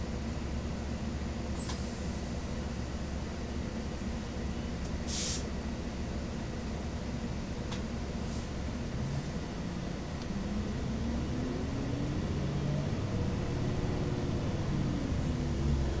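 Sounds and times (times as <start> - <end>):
bus diesel engine idling: 0.0 - 11.2
air hiss: 5.1 - 5.5.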